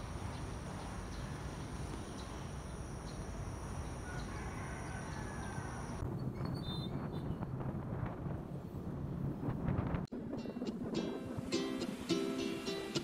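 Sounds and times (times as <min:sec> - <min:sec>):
insect trill: 0:00.0 - 0:06.0.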